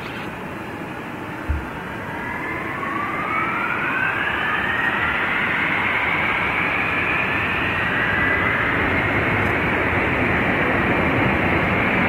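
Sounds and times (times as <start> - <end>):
jet engines spooling up: 0.0 - 12.0.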